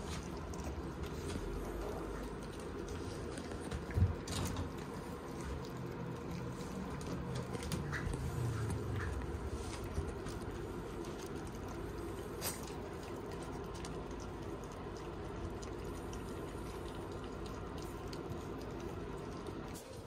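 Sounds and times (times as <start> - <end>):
puppies chewing kibble: 0.0 - 20.0.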